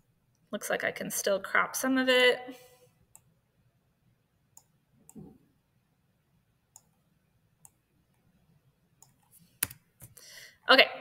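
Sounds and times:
computer mouse clicks: 0:06.7 - 0:07.0, 0:09.0 - 0:10.2.

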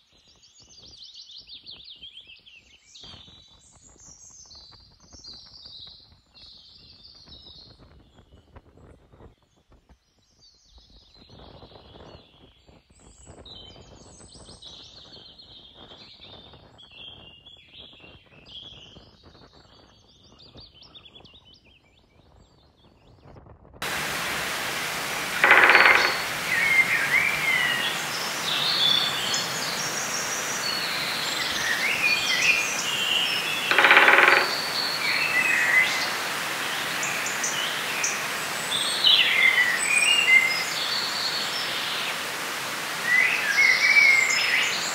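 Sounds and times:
birds chirping: 0:23.8 - 0:44.9
loud bird calls: 0:23.8 - 0:44.9
steady rushing outdoor noise: 0:23.8 - 0:44.9.

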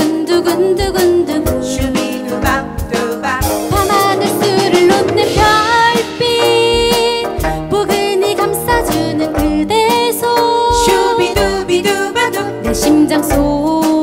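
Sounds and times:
drum kit beat: 0:00.0 - 0:14.0
person singing: 0:00.0 - 0:14.0
plucked zither: 0:04.0 - 0:14.0.

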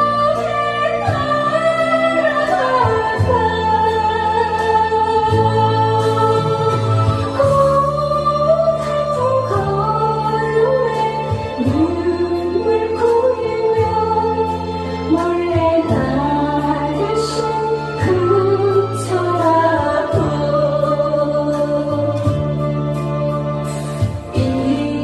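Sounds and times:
instrumental backing with bass line: 0:00.0 - 0:25.0
woman singing into a microphone: 0:00.0 - 0:25.0.

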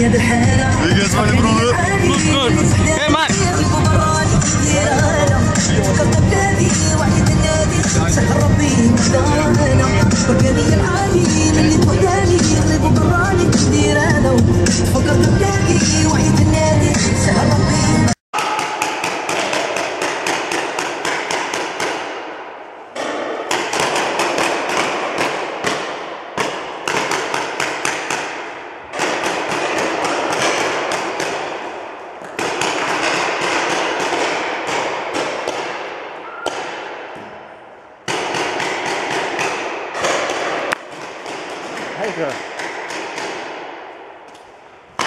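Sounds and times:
paintball markers firing: 0:18.4 - 0:22.4, 0:23.0 - 0:37.3, 0:38.0 - 0:45.0.

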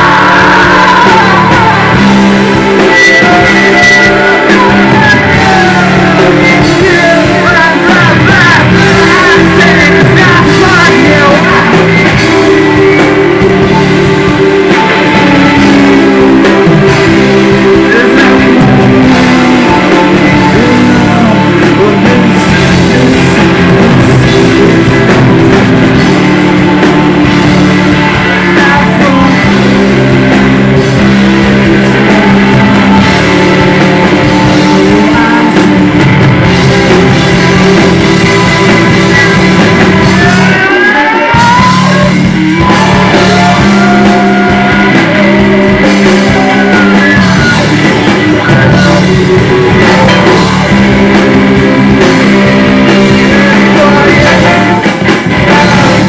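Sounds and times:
bass guitar: 0:00.0 - 0:56.0
drum kit: 0:00.0 - 0:56.0
electric guitar: 0:00.0 - 0:56.0
keyboards: 0:00.0 - 0:56.0
rising pitch slides: 0:41.2 - 0:56.0.

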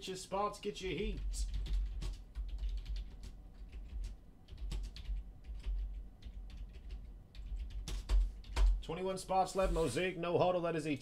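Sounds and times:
low steady hum: 0:00.0 - 0:11.0
keyboard typing: 0:01.0 - 0:08.8.

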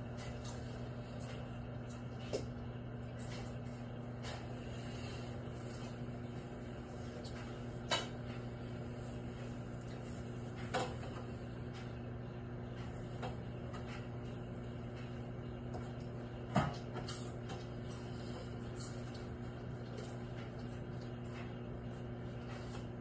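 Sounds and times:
microwave oven humming: 0:00.0 - 0:23.0.

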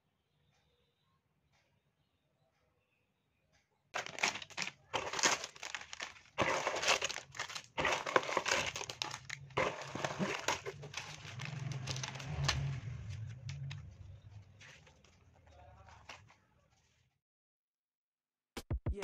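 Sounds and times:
plastic bags crinkling: 0:04.0 - 0:13.8.

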